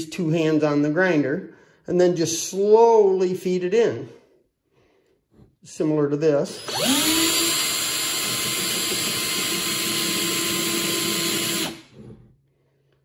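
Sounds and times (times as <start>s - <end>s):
cordless drill whining: 6.5s - 12.3s.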